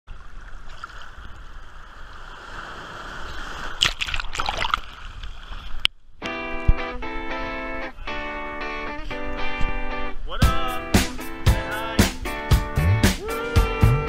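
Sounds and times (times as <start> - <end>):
sea water sloshing: 0.1 - 5.9
wave splashing: 0.1 - 5.9, 7.9 - 13.9
guitar music: 6.2 - 14.0.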